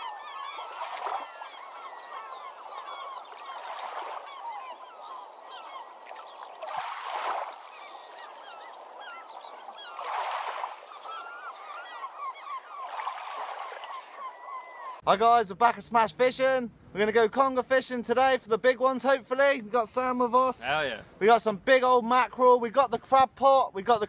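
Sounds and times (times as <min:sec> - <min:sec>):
chorus of birds calling: 0:00.0 - 0:15.0.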